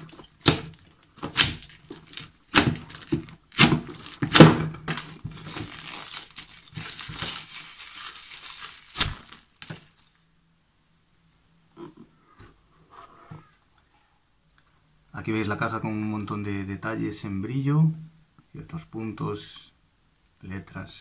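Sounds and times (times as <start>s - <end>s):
shrink wrap ripping: 0.0s - 10.1s
plastic film crinkling: 0.0s - 10.2s.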